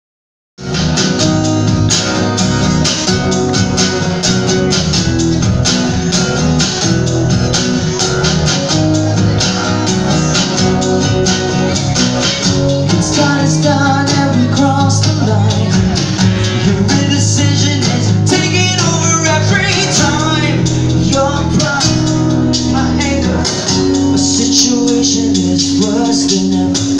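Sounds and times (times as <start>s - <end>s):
acoustic guitars strumming: 0.6s - 26.9s
man singing: 12.8s - 26.9s.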